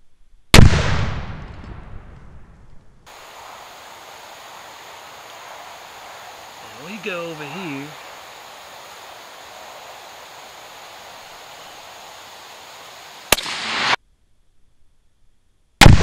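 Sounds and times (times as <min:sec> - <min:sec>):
rifle shot: 0:00.6 - 0:02.4, 0:13.3 - 0:14.0, 0:15.8 - 0:16.0
gunshot echo: 0:00.6 - 0:02.5, 0:13.3 - 0:14.0.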